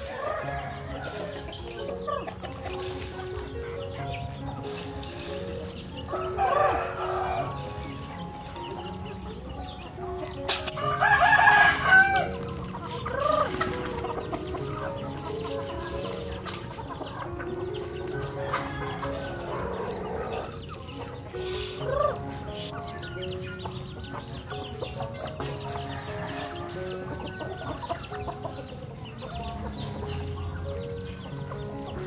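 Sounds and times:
rooster crowing: 0:00.0 - 0:01.4, 0:06.1 - 0:07.6, 0:10.8 - 0:12.4, 0:18.2 - 0:20.5
chickens clucking: 0:00.0 - 0:32.0.

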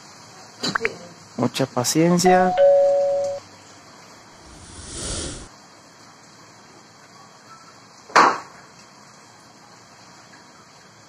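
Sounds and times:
soft rushing noise: 0:04.4 - 0:05.5.

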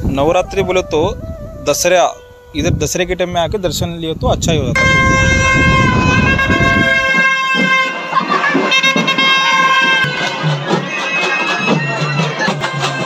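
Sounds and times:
high held horn note: 0:00.5 - 0:03.0, 0:04.7 - 0:13.0
crowd noise: 0:04.8 - 0:13.0
dhol drum beats: 0:04.8 - 0:13.0.

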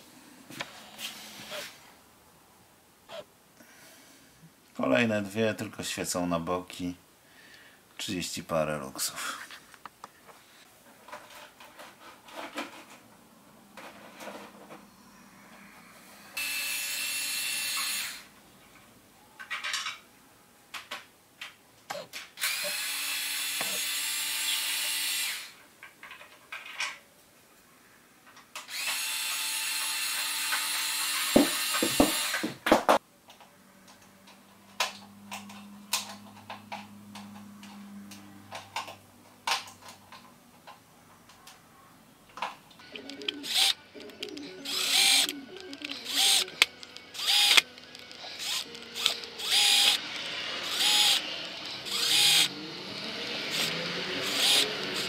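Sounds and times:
cordless drill driving screws: 0:16.4 - 0:18.3, 0:22.4 - 0:25.6, 0:28.7 - 0:32.5, 0:43.4 - 0:43.8, 0:44.6 - 0:55.0.

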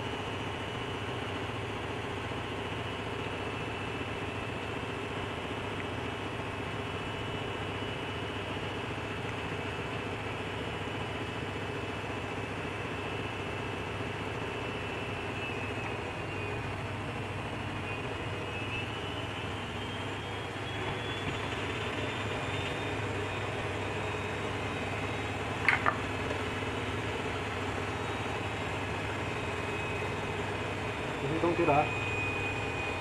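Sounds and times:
faint high whine: 0:09.6 - 0:33.0.

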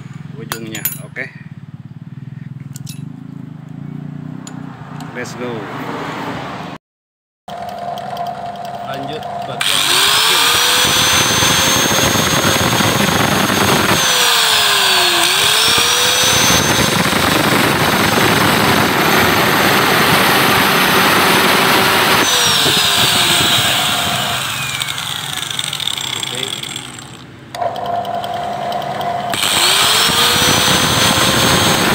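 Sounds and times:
motors humming: 0:07.5 - 0:31.9
angle grinder cutting metal: 0:08.9 - 0:31.9.

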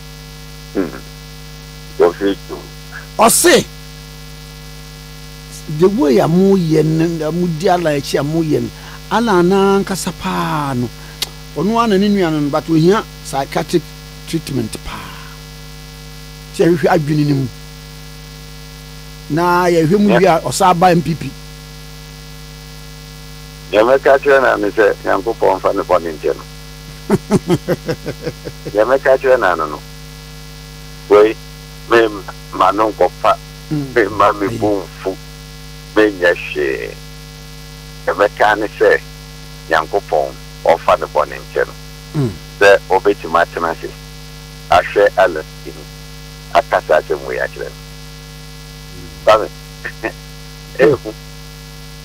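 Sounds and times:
electrical mains hum: 0:00.0 - 0:52.0
man talking: 0:02.0 - 0:03.7, 0:05.5 - 0:10.9, 0:11.6 - 0:15.2, 0:16.6 - 0:17.5, 0:19.3 - 0:21.4, 0:27.1 - 0:29.8, 0:31.1 - 0:35.2, 0:39.7 - 0:44.0, 0:44.7 - 0:45.8, 0:49.0 - 0:50.1, 0:50.8 - 0:51.1.

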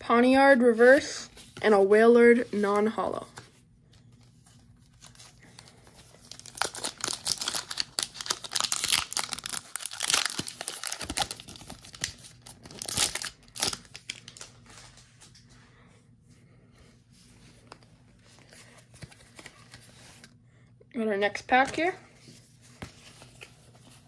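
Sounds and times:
foil wrapper tearing and crinkling: 0:06.2 - 0:14.5.

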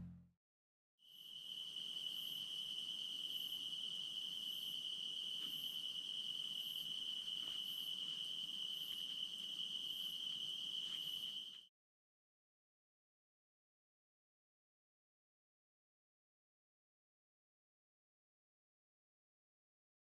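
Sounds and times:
faint high insect pulsing: 0:01.0 - 0:11.7
insect trill: 0:01.0 - 0:11.7.

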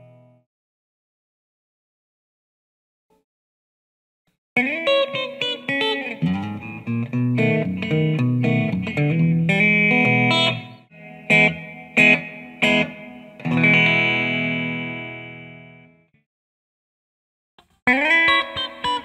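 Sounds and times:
electric guitar playing: 0:04.6 - 0:16.0, 0:17.9 - 0:19.0.

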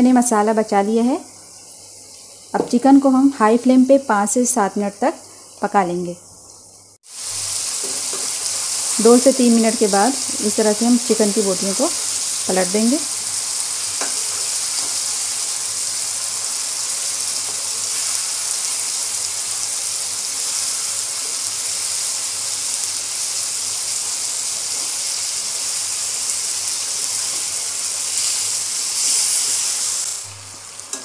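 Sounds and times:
chicken sizzling in hot oil: 0:07.0 - 0:31.0.

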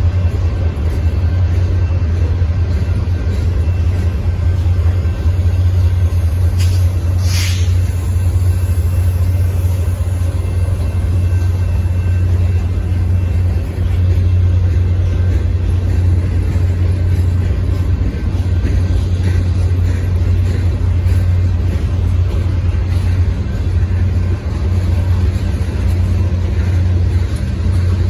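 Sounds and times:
freight train wheels rumbling: 0:00.0 - 0:28.0
high hiss or screech: 0:06.6 - 0:08.1.

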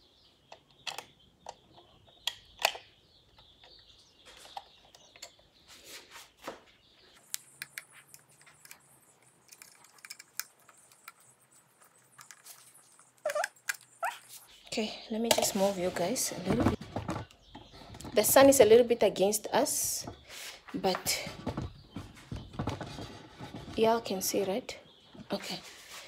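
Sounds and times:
small plastic clicks and scrapes: 0:07.3 - 0:14.4.

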